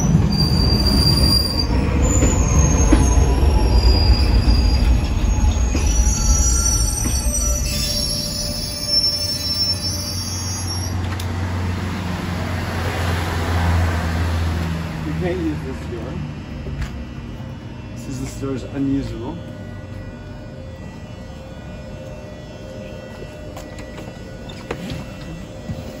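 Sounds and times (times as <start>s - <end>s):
train wheel squeals: 0.0s - 11.4s, 23.1s - 26.0s
electric train rumble: 0.0s - 26.0s
train standing low hum: 0.0s - 26.0s.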